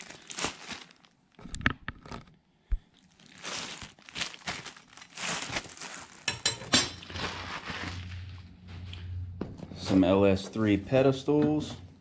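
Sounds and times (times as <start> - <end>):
plastic packaging crinkling: 0.0 - 8.4.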